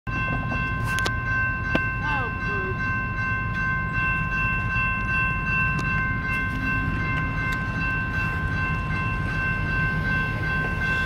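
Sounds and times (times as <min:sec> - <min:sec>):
railroad crossing warning bells: 0:00.1 - 0:11.0.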